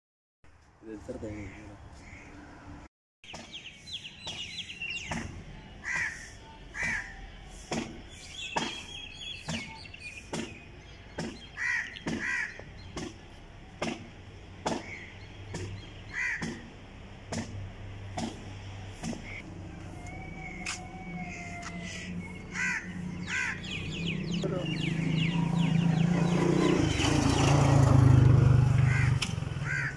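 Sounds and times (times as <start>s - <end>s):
small birds twittering: 1.0s - 17.4s, 18.1s - 29.9s
crows cawing: 5.8s - 7.3s, 11.5s - 12.8s, 16.1s - 16.7s, 19.2s - 24.0s, 28.8s - 29.9s.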